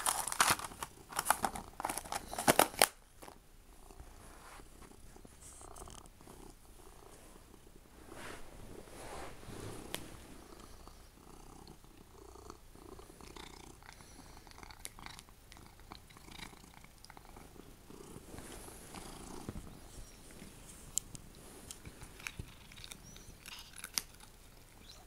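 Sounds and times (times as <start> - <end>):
cat purring: 3.7 - 25.0.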